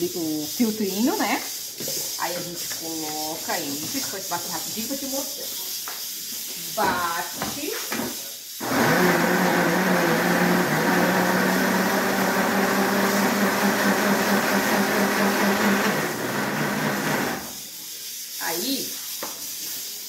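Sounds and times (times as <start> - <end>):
blender motor hum: 8.6 - 17.6.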